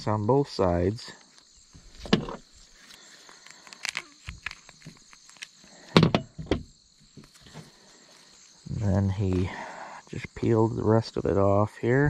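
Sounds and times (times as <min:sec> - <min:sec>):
soft tearing and handling: 0:02.6 - 0:05.7
sharp knocks: 0:06.0 - 0:06.7.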